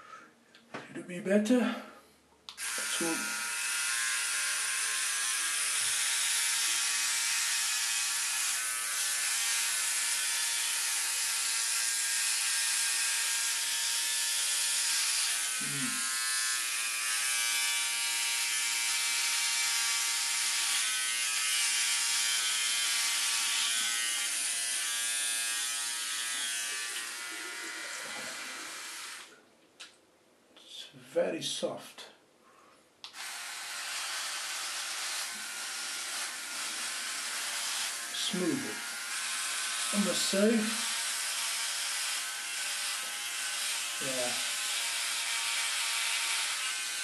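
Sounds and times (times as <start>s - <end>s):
electric trimmer buzzing: 2.5s - 29.3s, 33.1s - 47.0s.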